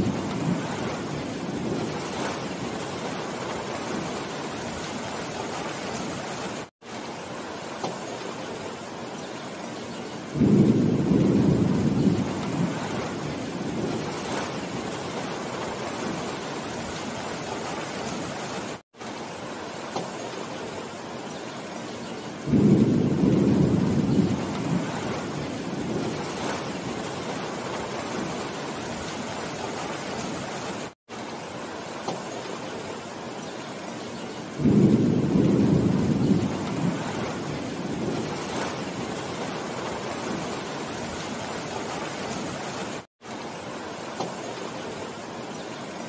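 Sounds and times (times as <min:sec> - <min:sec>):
low rumble of thunder: 0:00.0 - 0:04.2, 0:10.3 - 0:16.3, 0:22.4 - 0:28.6, 0:34.6 - 0:42.2
heavy rain on leafy trees: 0:00.0 - 0:46.0.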